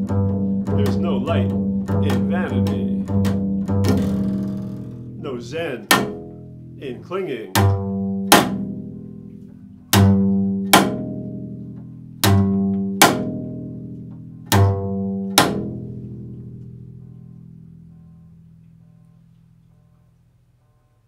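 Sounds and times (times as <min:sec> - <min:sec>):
plucked double bass notes: 0:00.0 - 0:20.0
sharp percussive slap: 0:02.0 - 0:04.9, 0:05.9 - 0:06.4, 0:07.6 - 0:08.8, 0:10.0 - 0:11.2, 0:12.2 - 0:13.4, 0:14.5 - 0:15.8.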